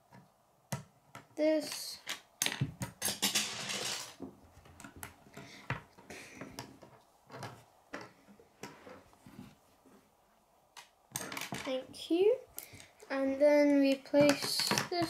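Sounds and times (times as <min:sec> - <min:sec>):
soft handling noise: 0:01.6 - 0:15.0.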